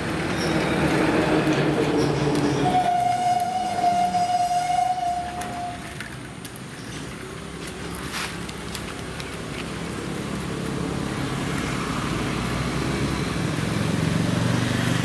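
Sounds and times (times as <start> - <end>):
passing road traffic: 0.0 - 15.0
vehicle horn long note: 2.7 - 5.8.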